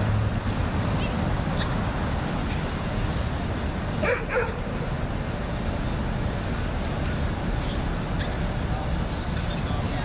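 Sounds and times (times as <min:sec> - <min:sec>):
dog barking: 0:04.0 - 0:04.6.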